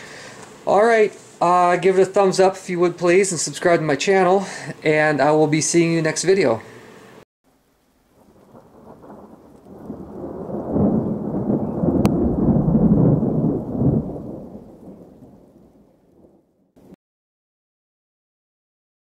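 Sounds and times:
deep rumble: 8.6s - 15.3s.

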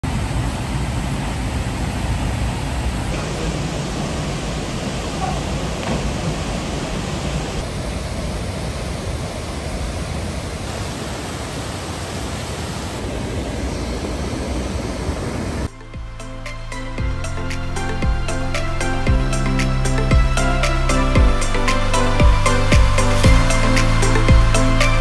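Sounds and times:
waterfall rushing: 0.1s - 15.8s, 16.4s - 25.0s.

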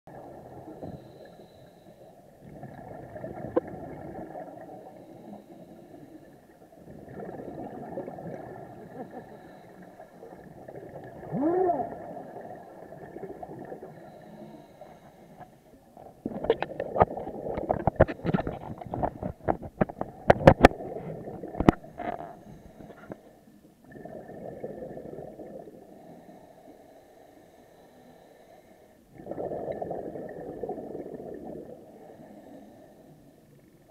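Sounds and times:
sharp clicks and pops: 16.2s - 20.8s.

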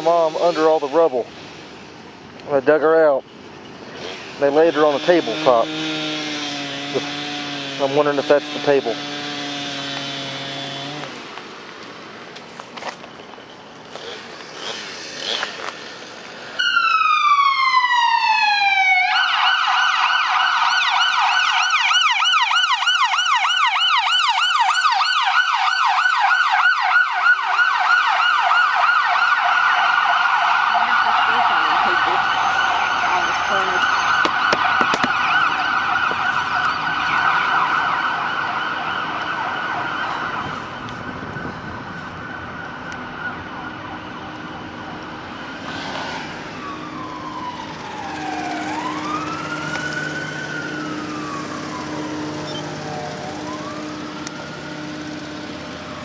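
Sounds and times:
emergency vehicle siren: 4.4s - 9.0s, 16.5s - 56.0s.

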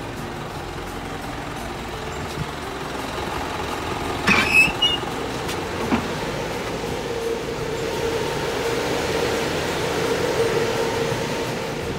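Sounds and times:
diesel truck engine idling: 0.0s - 11.9s
high-pitched metallic squeak: 4.2s - 5.2s.

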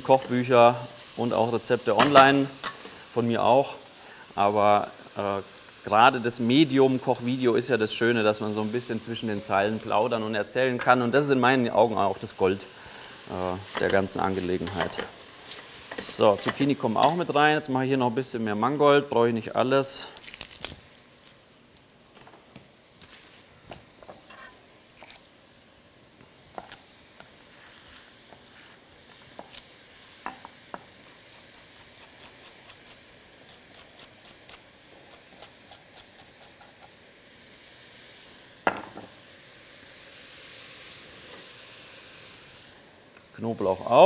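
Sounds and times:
vegetables sizzling in a frying pan: 0.0s - 44.0s
wooden spoon stirring pan: 11.7s - 17.3s, 23.0s - 24.6s.

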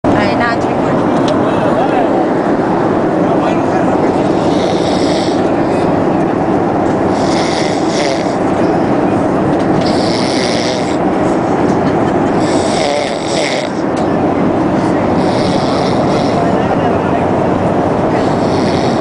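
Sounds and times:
airliner cabin drone: 0.0s - 19.0s
man snoring: 4.2s - 5.5s, 7.1s - 8.4s, 9.8s - 11.0s, 12.4s - 13.8s, 15.1s - 16.4s, 18.2s - 19.0s.

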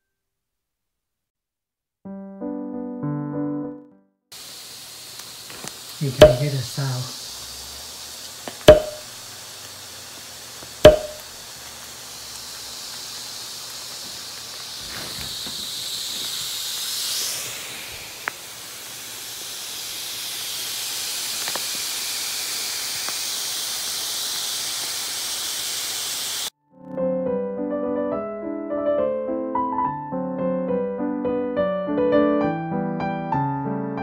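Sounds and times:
air hissing into mattress: 4.3s - 26.5s
sharp taps: 6.2s - 6.6s, 8.7s - 9.1s, 10.8s - 11.2s.

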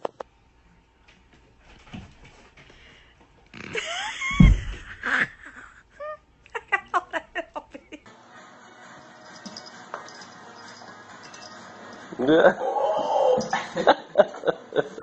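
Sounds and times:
loud thump: 4.3s - 4.9s.

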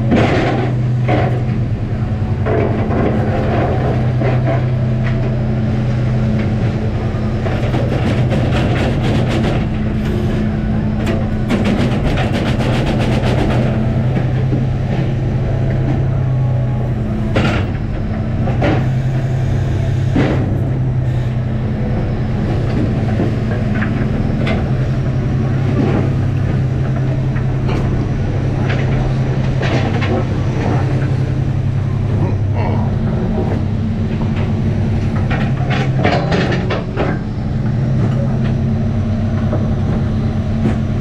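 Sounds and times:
boat engine and hydraulics droning: 0.0s - 41.0s.

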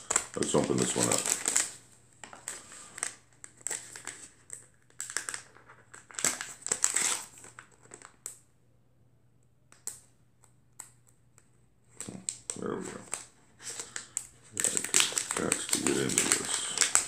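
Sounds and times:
packaging crinkling: 0.0s - 8.2s, 11.9s - 17.0s.

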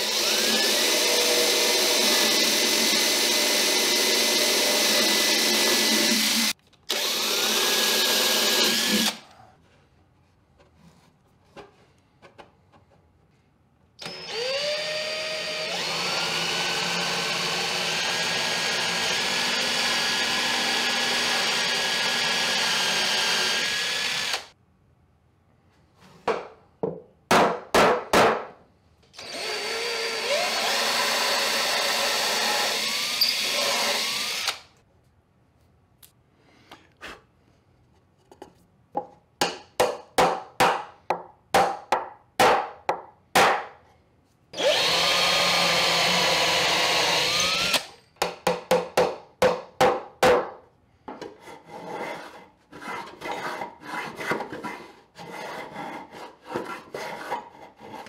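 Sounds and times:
cordless drill running: 0.0s - 9.2s, 14.0s - 24.5s, 29.2s - 34.7s, 44.6s - 47.9s.

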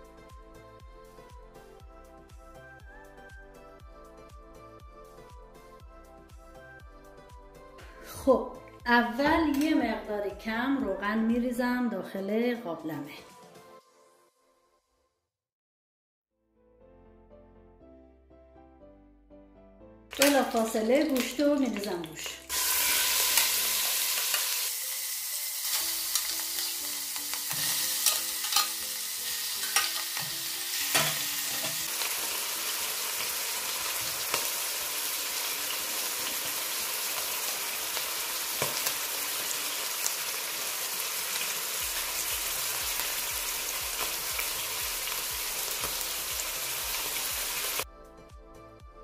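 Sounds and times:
meat sizzling in hot oil: 20.1s - 47.8s.

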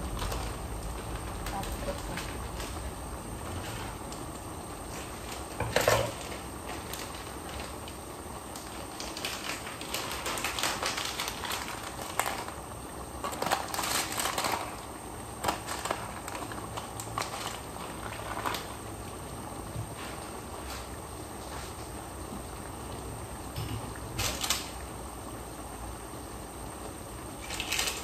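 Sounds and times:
chicken sizzling in a pan: 0.0s - 20.9s.

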